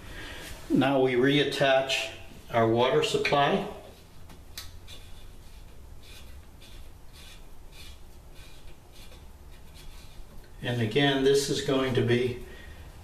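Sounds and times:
soft scraping and rubbing: 4.8s - 12.4s.

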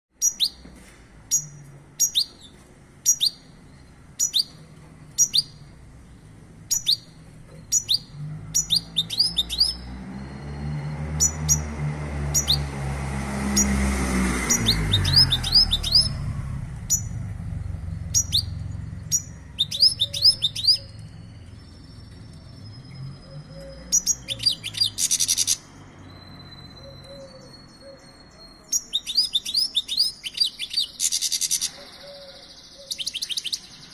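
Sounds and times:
goldfinch chirping and twittering: 1.3s - 5.7s, 6.7s - 11.7s, 12.3s - 12.7s, 14.5s - 16.3s, 16.9s - 33.9s
low rumble: 10.2s - 23.6s.

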